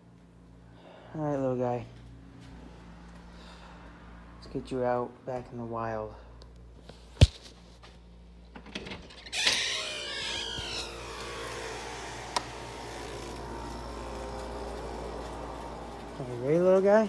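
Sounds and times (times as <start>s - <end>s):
outdoor background hum and hiss: 0.0s - 17.0s
door opening with squeaky scrape: 8.7s - 11.8s.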